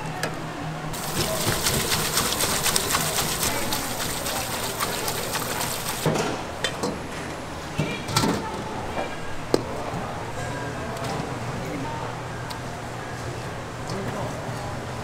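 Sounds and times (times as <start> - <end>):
hands rinsing noodles: 1.0 - 6.1
tap water spraying: 1.0 - 6.1.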